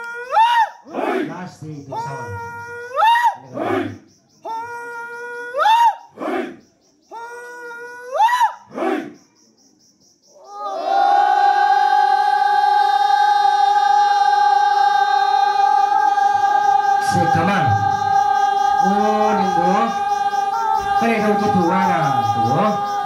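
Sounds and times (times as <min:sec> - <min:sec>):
lower voices calling and singing: 0:00.8 - 0:23.0
men holding long high note: 0:10.8 - 0:23.0.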